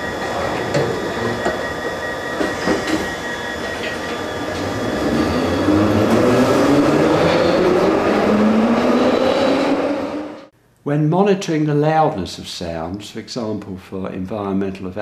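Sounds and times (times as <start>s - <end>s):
train motors whining: 0.0s - 10.5s
wheels rumbling on rails: 0.0s - 10.5s.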